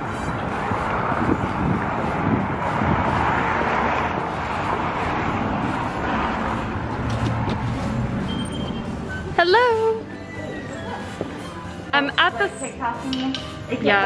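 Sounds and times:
wind on microphone: 0.0 - 8.3
road traffic hum: 0.0 - 14.0.

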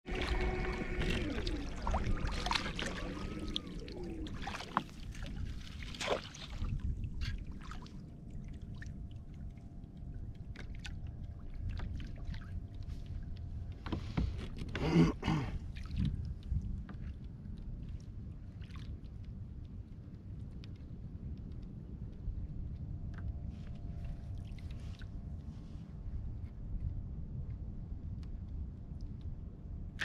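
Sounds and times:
water lapping against plastic hull: 0.0 - 19.8
wind rumble on microphone: 0.0 - 30.0.

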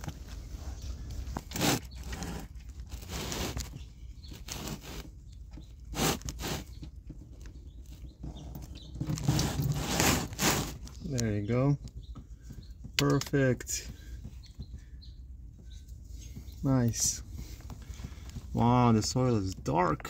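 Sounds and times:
hand ratchet scraping and knocking: 1.4 - 14.8.

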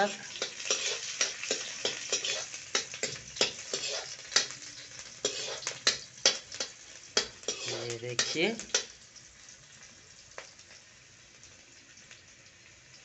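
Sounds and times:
oil sizzling: 0.0 - 13.0
ladle scraping iron pan: 0.3 - 4.6, 5.2 - 8.9.

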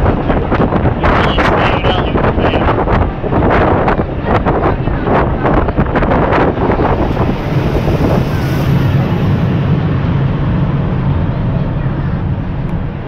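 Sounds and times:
tram wheels rumbling on rails: 0.0 - 13.0
wind noise on microphone: 0.0 - 13.0.

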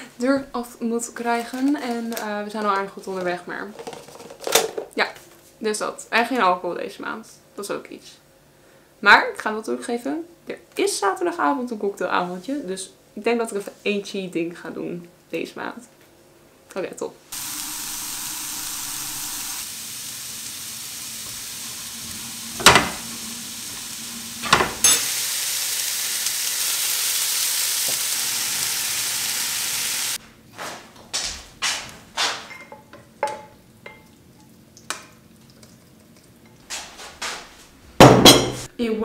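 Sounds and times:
vegetables sizzling in a pan: 17.3 - 30.2
pan and bowl clinking: 24.4 - 25.1, 32.5 - 34.2.

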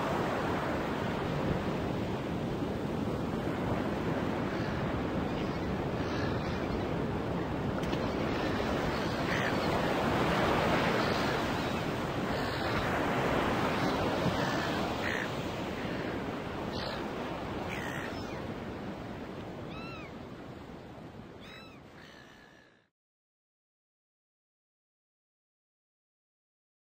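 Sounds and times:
ocean waves washing: 0.0 - 21.6.

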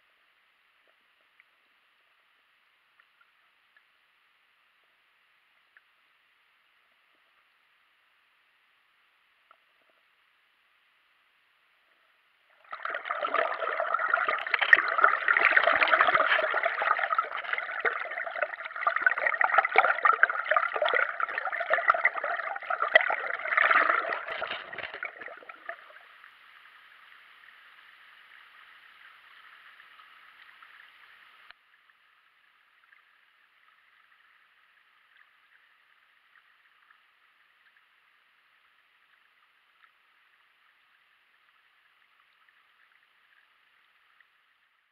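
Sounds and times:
faint steady hiss: 0.0 - 44.9
water rushing underwater: 12.5 - 31.5.

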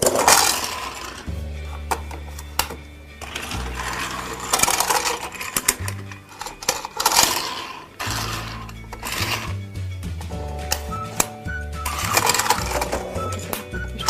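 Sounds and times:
background music with bass line: 0.0 - 7.2, 7.9 - 14.0
plastic toy train clicking: 0.0 - 9.6, 10.7 - 14.0.

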